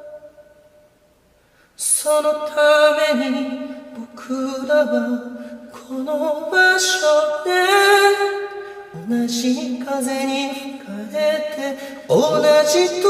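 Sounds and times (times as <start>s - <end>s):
person singing long held notes: 10.8s - 13.0s.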